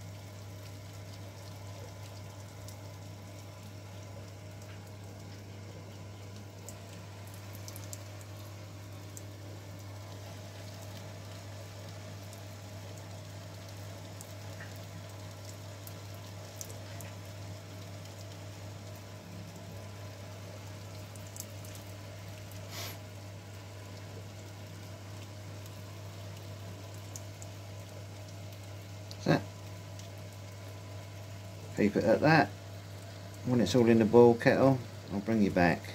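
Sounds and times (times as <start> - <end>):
pump electric hum: 0.0 - 35.9
water trickling and splashing: 0.0 - 35.9.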